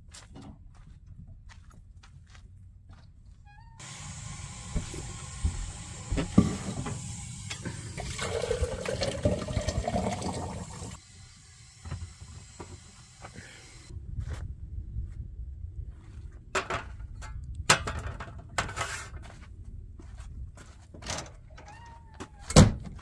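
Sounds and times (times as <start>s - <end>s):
water pouring into metal press: 5.3s - 11.0s.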